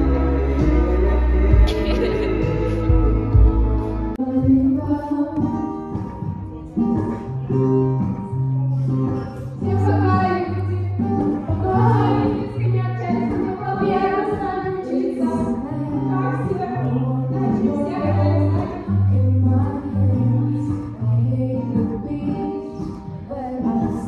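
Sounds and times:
backing track with bass notes: 0.0 - 14.2
girls singing into microphones: 9.6 - 24.0.

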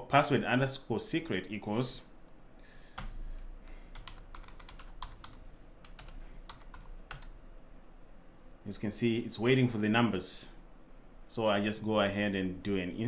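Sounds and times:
computer keyboard typing: 3.0 - 3.2, 3.8 - 7.4.

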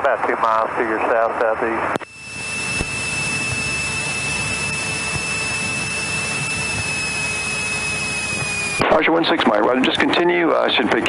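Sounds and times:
steady high whistle: 2.0 - 8.8.

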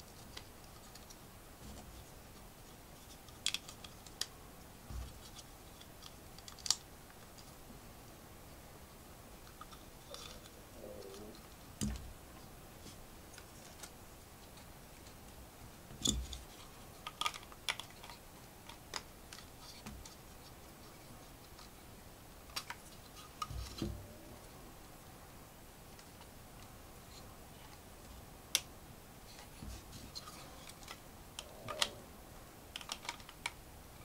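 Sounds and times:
plastic toy bricks clicking: 32.7 - 33.6.

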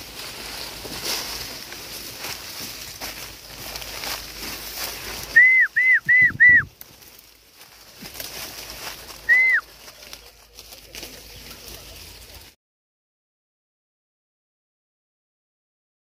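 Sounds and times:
whistled sliding notes: 5.3 - 6.7, 9.2 - 9.7.

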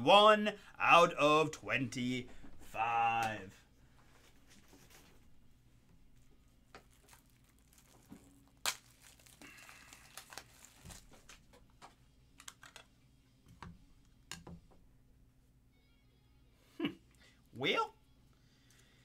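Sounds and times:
soft plastic crinkling: 3.9 - 12.9.

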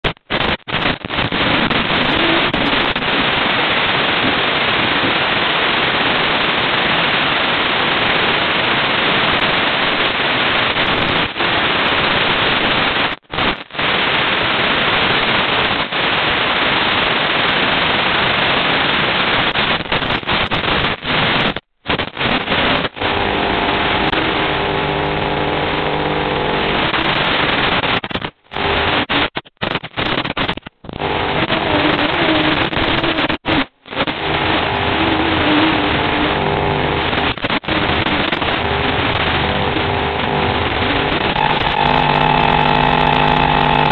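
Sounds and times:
radio static hiss: 0.0 - 43.9
faint steady hum: 21.9 - 43.9.

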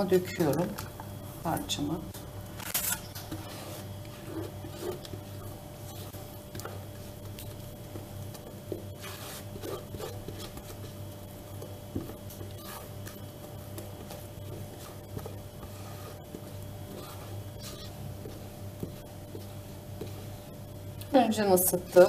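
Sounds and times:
steady low hum: 0.0 - 22.0
spatula scraping a bowl: 2.8 - 6.4, 8.8 - 11.0, 12.4 - 13.2, 14.0 - 20.4.

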